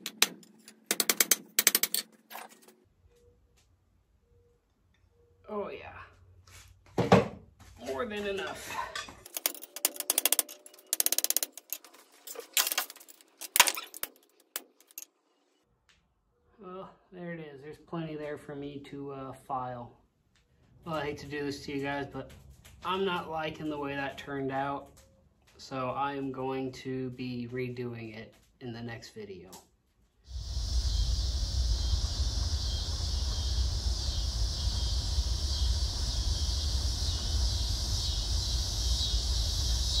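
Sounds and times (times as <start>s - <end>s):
high insect chorus: 30.3s - 40.0s
wind rumble on microphone: 30.3s - 40.0s.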